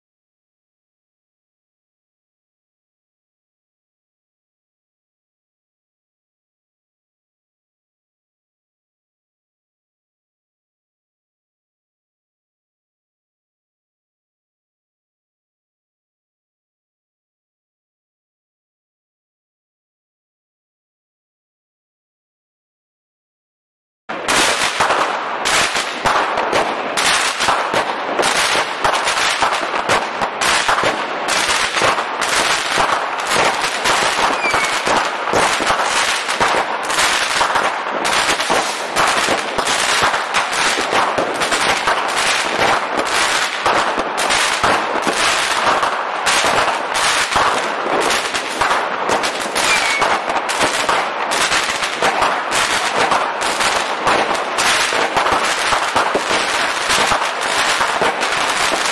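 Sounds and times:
fireworks bangs and crackling: 24.1 - 58.9.

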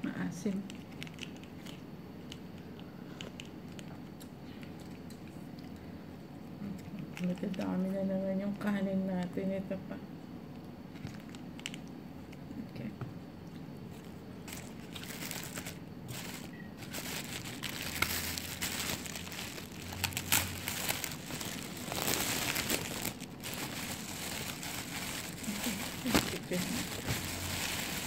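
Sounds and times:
food packaging crinkling: 10.9 - 12.0, 13.9 - 28.0.

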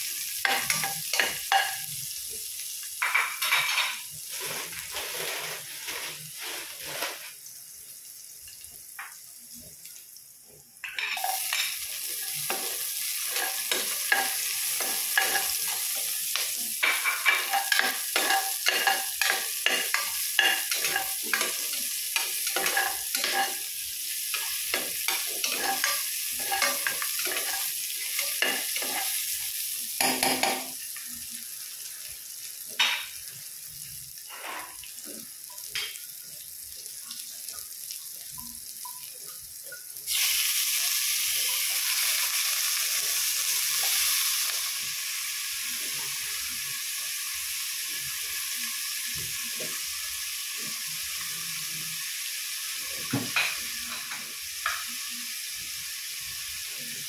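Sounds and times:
food sizzling in hot oil: 0.0 - 57.0
spatula scraping and knocking pan: 10.9 - 23.6, 24.3 - 29.3.

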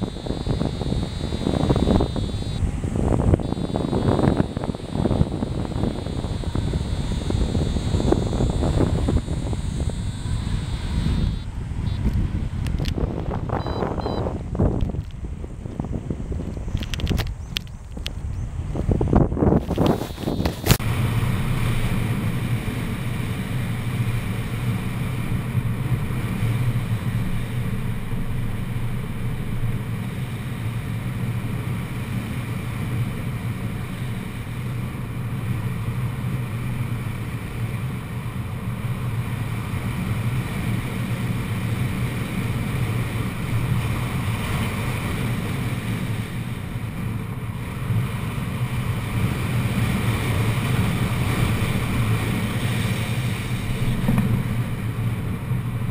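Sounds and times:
wind rushing: 0.0 - 16.8
constant low rumble: 0.0 - 55.9.

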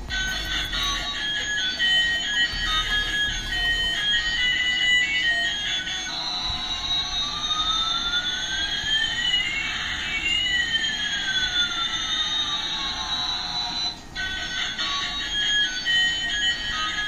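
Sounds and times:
toy jet engine sound effect: 0.0 - 5.6.

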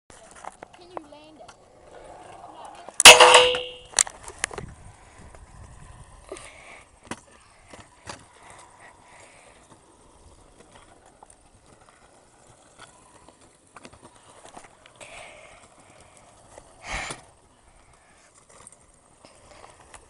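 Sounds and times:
kick scooters rolling on asphalt: 0.1 - 3.0, 3.8 - 20.0
scooter wheels clicking and knocking: 0.2 - 6.2, 6.8 - 20.0.

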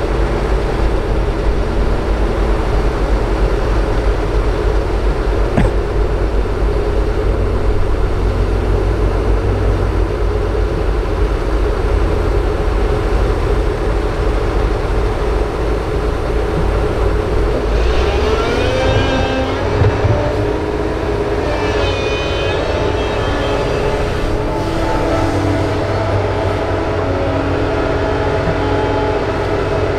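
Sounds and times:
excavator diesel engine running: 0.0 - 29.9
short knock: 5.5 - 5.9
rising whine: 16.2 - 29.9.

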